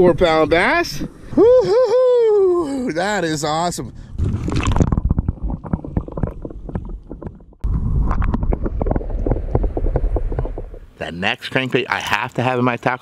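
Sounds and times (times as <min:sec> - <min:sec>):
muffled underwater rumble: 0:04.0 - 0:11.0
water sloshing and splashing: 0:04.1 - 0:11.0.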